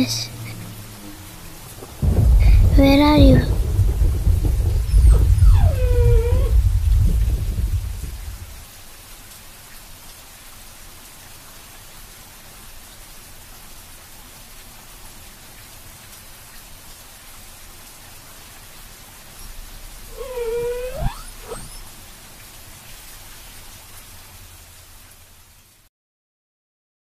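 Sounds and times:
thunder rumble: 0.0 - 8.7, 19.4 - 22.0
rain hiss: 0.0 - 25.9.

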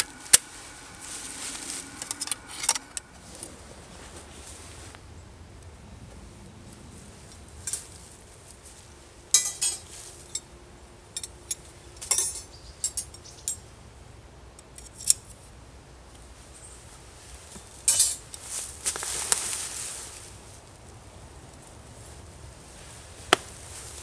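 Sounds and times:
metal cooking gear clinking: 9.4 - 10.4, 11.2 - 13.2.

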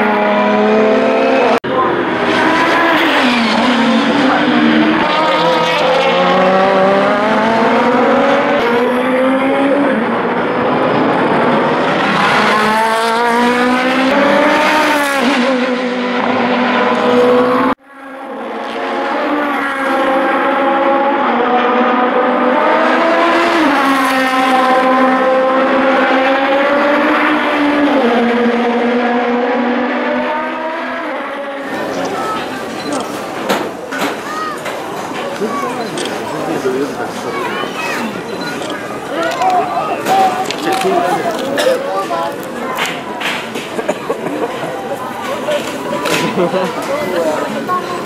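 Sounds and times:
race car engine accelerating: 0.0 - 33.9.

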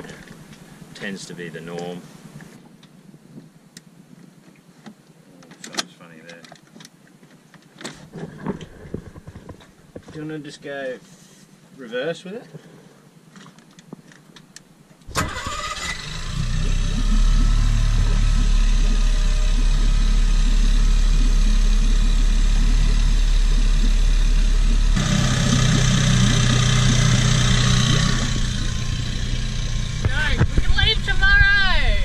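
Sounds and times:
outboard engine running: 15.1 - 31.6.

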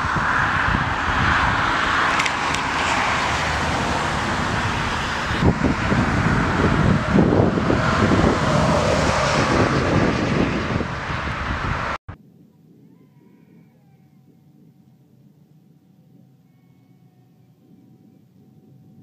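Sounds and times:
jet engines roaring: 0.0 - 12.0
wind rumbling on microphone: 0.0 - 19.0.

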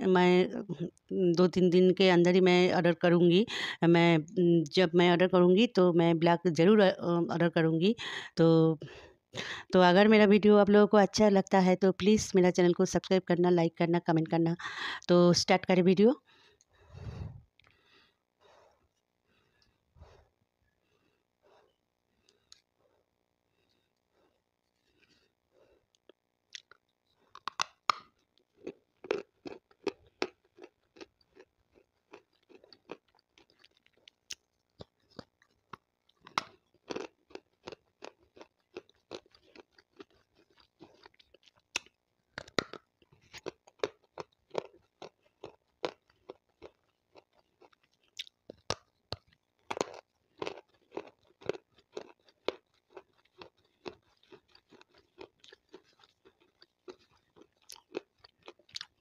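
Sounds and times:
crunchy chewing of stone: 23.6 - 59.0.

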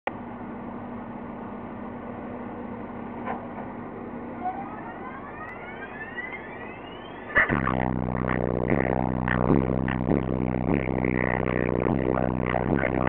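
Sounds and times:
outdoor background noise: 0.1 - 13.0
rising engine whine: 0.1 - 13.0
vehicle engine running: 6.4 - 13.0.

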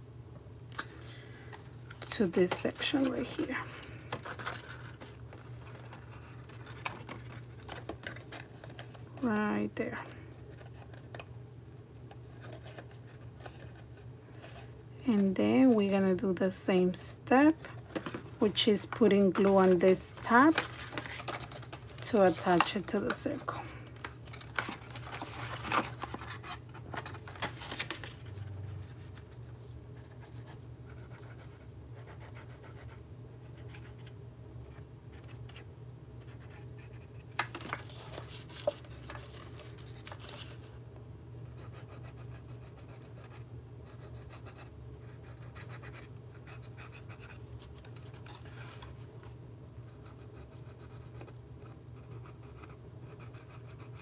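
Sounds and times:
faint low hum: 0.0 - 54.0
paper scraping and rustling: 2.0 - 9.1, 17.6 - 31.5, 36.4 - 40.8, 47.2 - 49.4.

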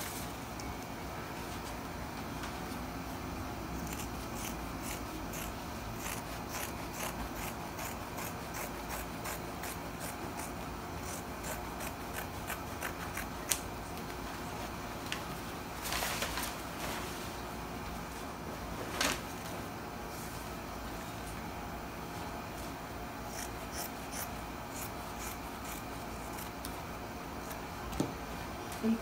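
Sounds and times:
scissors snipping fabric: 3.8 - 13.6, 23.3 - 26.8.

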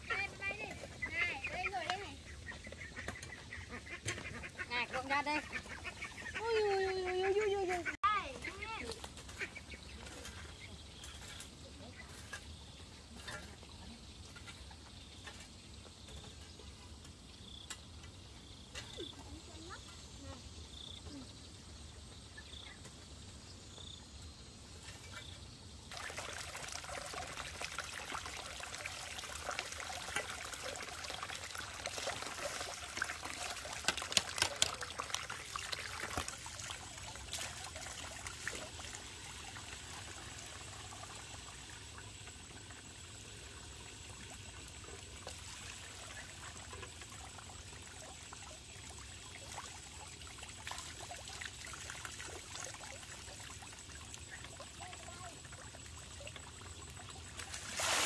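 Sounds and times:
water running: 25.9 - 58.0.

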